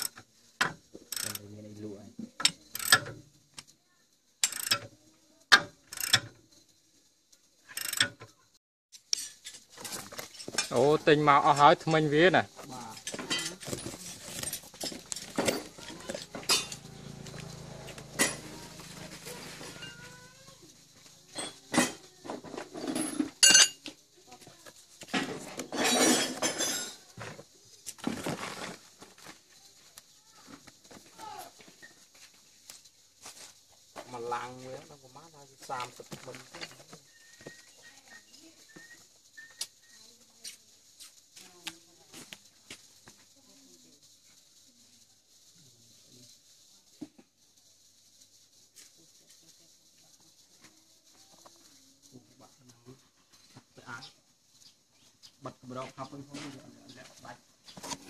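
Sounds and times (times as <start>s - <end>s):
wrench clicking and scraping on bolt: 0.0s - 0.2s, 1.0s - 1.4s, 2.4s - 3.2s, 4.4s - 4.9s, 5.5s - 6.3s, 7.7s - 8.2s
metal blades clinking and scraping: 9.1s - 10.9s, 12.9s - 16.9s, 18.2s - 20.2s.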